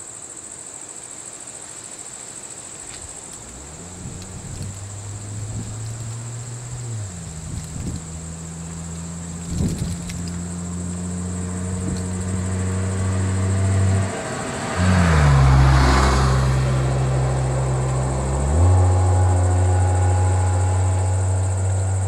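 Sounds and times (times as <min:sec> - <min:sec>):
vehicle engines idling: 0:02.6 - 0:22.0
vehicle driving past: 0:03.3 - 0:22.0.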